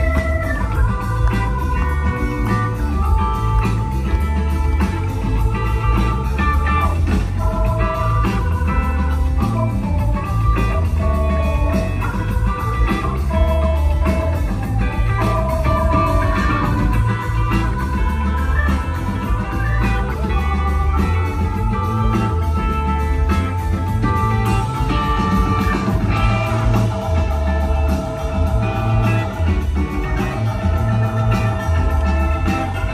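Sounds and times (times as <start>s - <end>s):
bass: 0.0s - 32.9s
drums: 0.0s - 32.9s
electric guitars playing melody: 0.0s - 32.9s.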